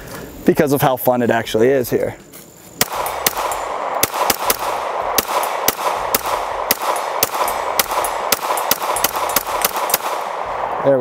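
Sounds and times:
pistol shots rapid fire: 2.8s - 10.7s.

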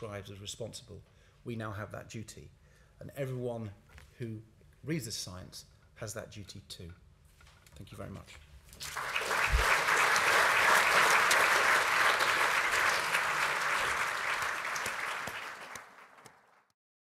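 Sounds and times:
audience applauding: 8.8s - 16.8s.

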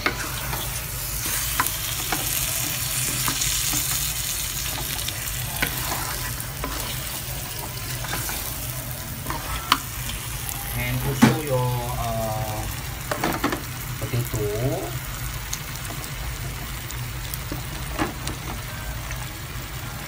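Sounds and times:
wooden spatula scraping: 0.0s - 10.2s
chicken sizzling in hot oil: 0.0s - 20.0s.

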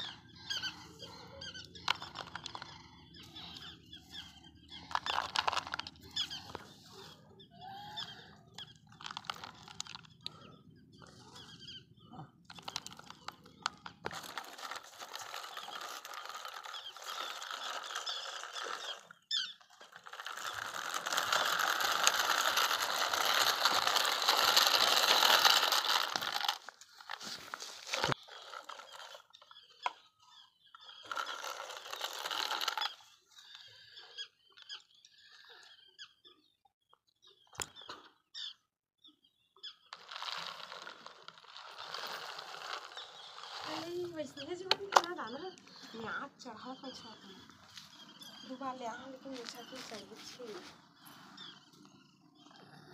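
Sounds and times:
toy tractor scraping on concrete: 0.0s - 11.8s, 12.5s - 35.8s, 39.8s - 52.9s
feed pellets rattling in plastic: 0.3s - 6.7s, 8.0s - 10.4s, 12.5s - 30.0s, 30.9s - 33.2s, 39.9s - 45.9s.

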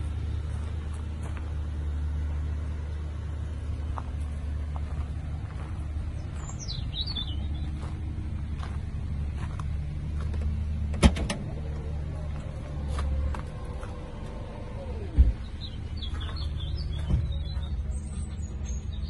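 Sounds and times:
tailgate thump: 10.9s - 11.5s
tailgate motor whining: 10.9s - 15.8s.

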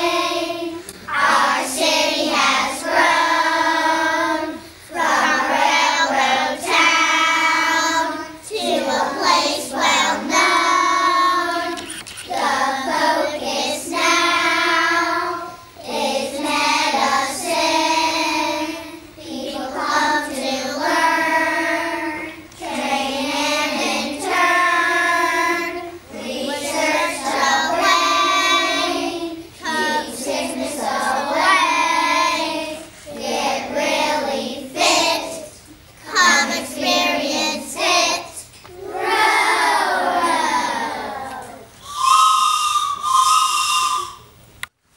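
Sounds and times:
young children singing: 0.0s - 44.2s.

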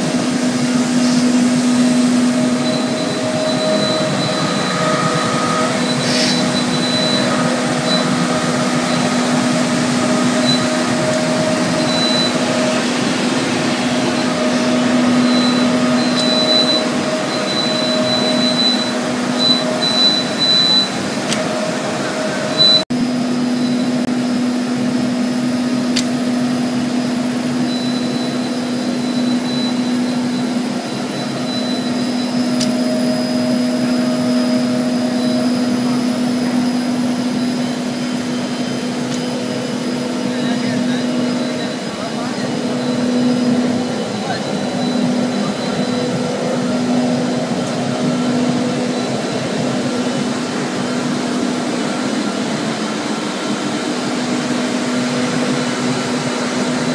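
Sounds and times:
machine hum with constant tones: 0.0s - 56.9s.

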